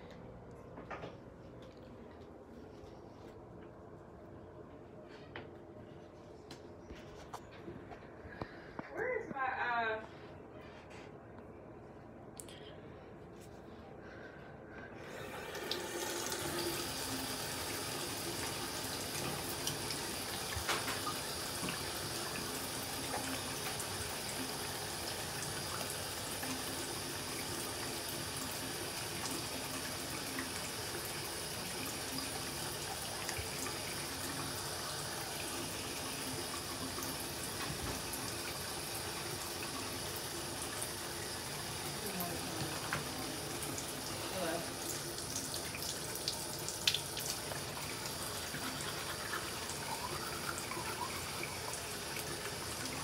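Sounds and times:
water running from a tap: 15.0 - 53.0.

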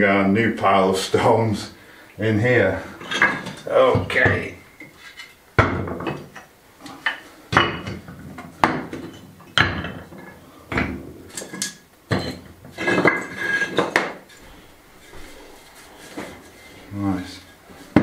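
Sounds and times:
tiles clattering: 3.0 - 18.0
clay tiles clinking and knocking: 5.1 - 14.4.

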